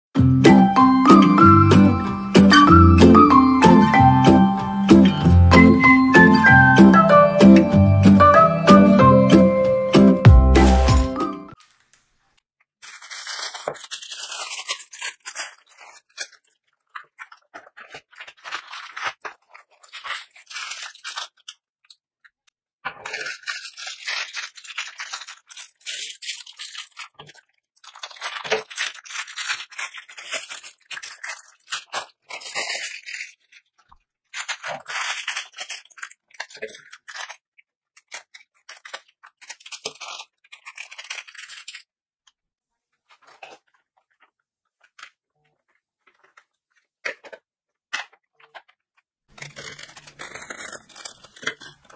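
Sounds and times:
plastic packaging crinkling: 10.6s - 41.9s, 43.1s - 51.9s
scissors cutting plastic: 12.8s - 42.4s, 43.2s - 51.9s.

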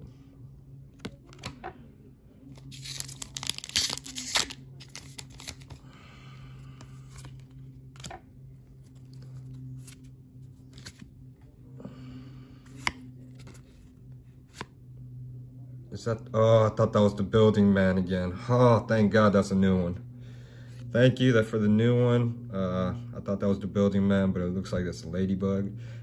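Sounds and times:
cards rustling: 1.0s - 1.6s, 2.5s - 5.8s, 6.8s - 11.2s, 12.6s - 14.7s
foil wrapper tearing: 2.6s - 5.8s.

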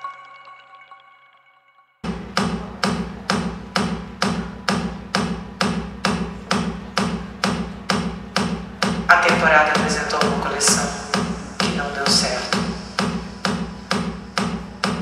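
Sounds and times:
hard percussion beat: 2.0s - 15.0s.

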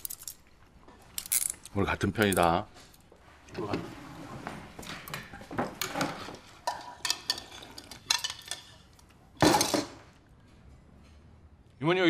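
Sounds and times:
chopsticks and spoons clinking on bowls: 5.1s - 9.8s.

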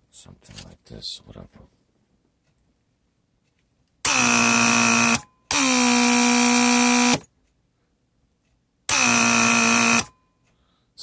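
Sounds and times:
electric pump motor buzzing: 4.1s - 7.2s, 8.9s - 10.1s.

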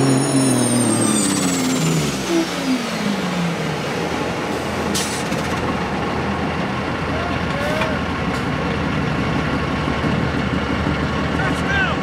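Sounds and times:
high turbo whine: 0.0s - 7.2s
diesel truck engine easing off: 0.0s - 12.0s.

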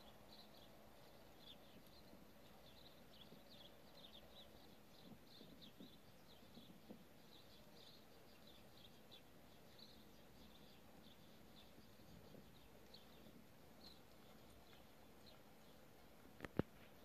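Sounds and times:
horse hooves on sand: 0.0s - 17.0s
small birds chirping: 0.0s - 17.0s.

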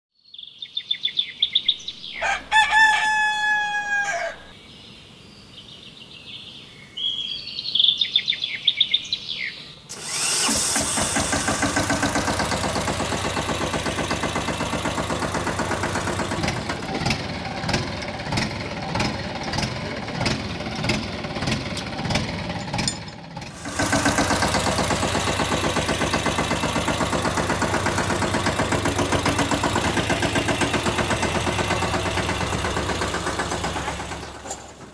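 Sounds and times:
bird calls: 0.2s - 9.9s
rooster crowing: 2.0s - 4.6s
engine chugging: 9.9s - 34.9s.

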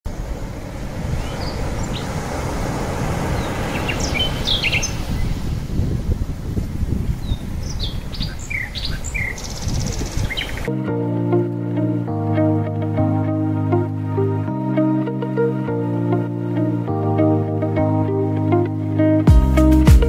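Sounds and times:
birds chirping: 1.0s - 5.9s, 7.1s - 10.7s.

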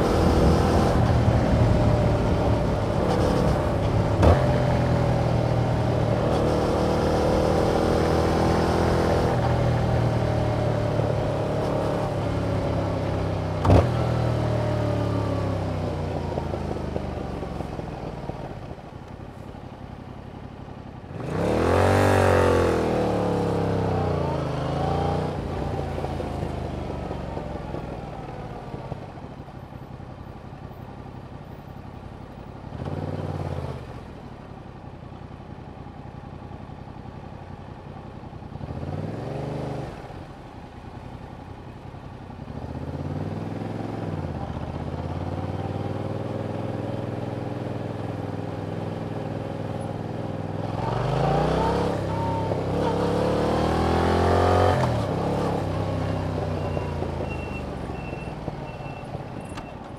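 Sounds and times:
motorcycle engine revving: 0.0s - 17.9s, 21.1s - 27.8s, 42.4s - 59.2s.

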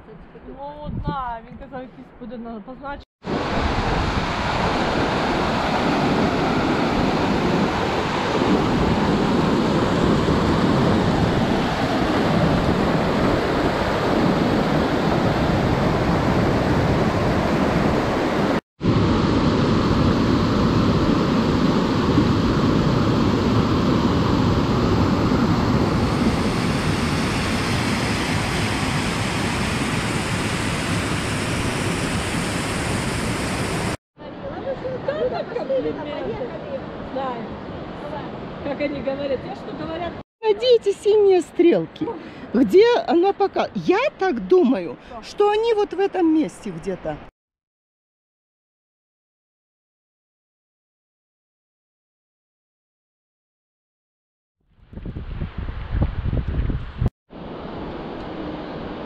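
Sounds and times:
rushing water: 3.2s - 41.4s.

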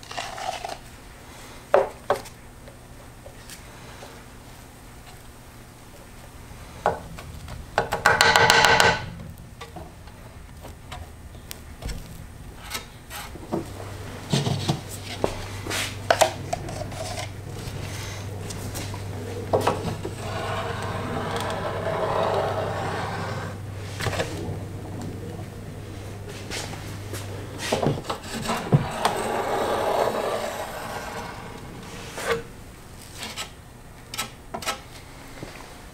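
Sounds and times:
low steady hum: 0.0s - 35.9s
wooden stick scraping epoxy: 6.8s - 9.2s, 11.4s - 33.6s.

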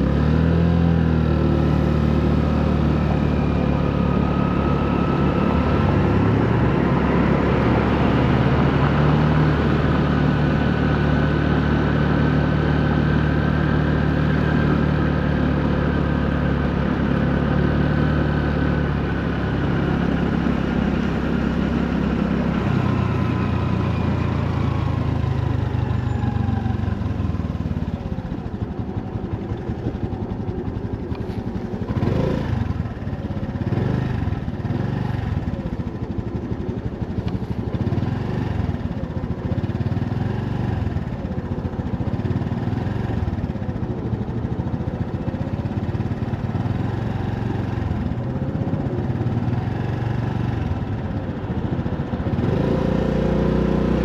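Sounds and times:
small motorcycle engine running: 0.0s - 54.0s.

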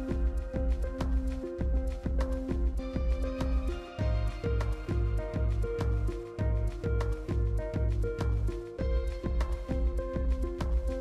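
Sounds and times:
background music with beat: 0.0s - 11.0s.

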